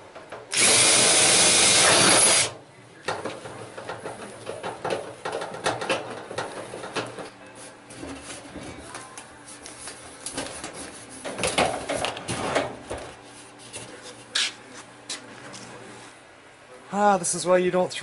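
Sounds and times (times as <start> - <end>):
screwdriver driving screws into metal: 0.5 - 2.5.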